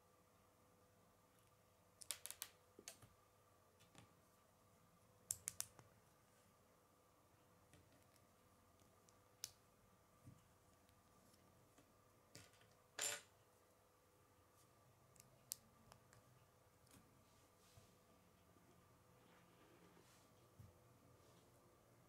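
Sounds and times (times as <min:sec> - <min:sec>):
faint steady hum: 0:00.0 - 0:22.0.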